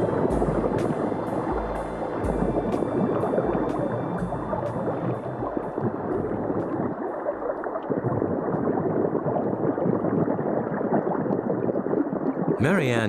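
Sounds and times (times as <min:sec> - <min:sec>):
faint ticking music beat: 0:00.0 - 0:08.8
underwater air bubbles gurgling: 0:00.0 - 0:12.6.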